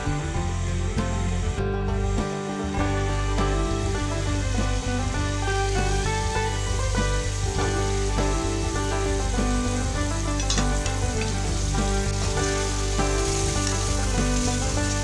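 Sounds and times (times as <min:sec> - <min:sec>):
curry sizzling in a pan: 0:00.0 - 0:15.0
metal spoon clicking on pan: 0:10.4 - 0:11.3.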